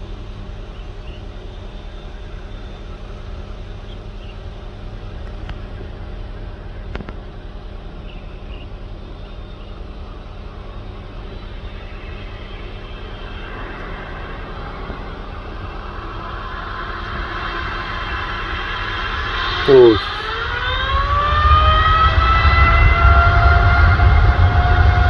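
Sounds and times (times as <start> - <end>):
distant jet engines rumbling: 0.0 - 25.0.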